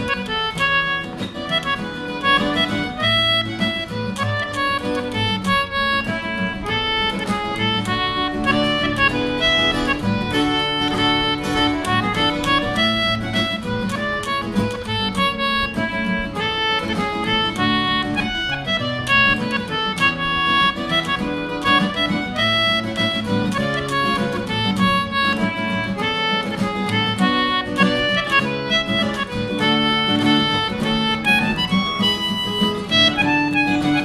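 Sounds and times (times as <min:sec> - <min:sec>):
acoustic guitar chords: 0:00.0 - 0:34.0
concertina melody: 0:00.0 - 0:34.0.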